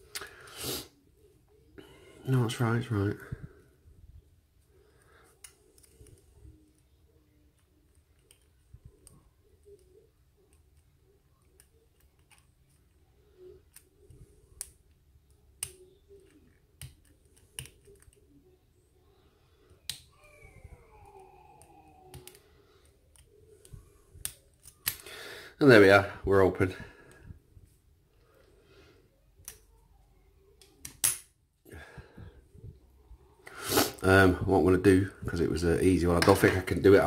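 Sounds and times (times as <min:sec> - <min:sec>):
lock pick clicking and scratching: 0:24.2 - 0:25.0.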